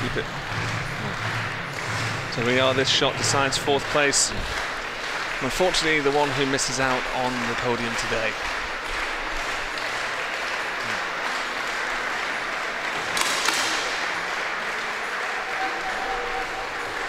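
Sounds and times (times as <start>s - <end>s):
crowd applauding and cheering: 0.0s - 17.0s
sharp crack: 13.0s - 14.5s.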